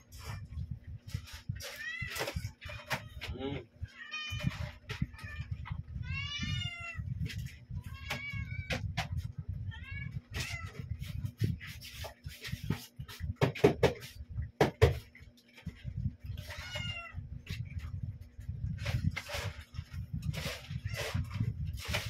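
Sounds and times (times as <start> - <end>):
cats meowing: 1.6 - 7.1, 7.8 - 8.9, 9.6 - 11.0, 16.4 - 17.3.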